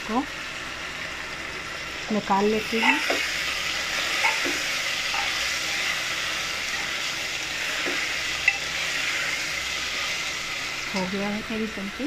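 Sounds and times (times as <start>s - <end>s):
potatoes sizzling in oil: 0.0s - 12.0s
steel spoon stirring: 4.0s - 6.1s, 7.8s - 9.4s.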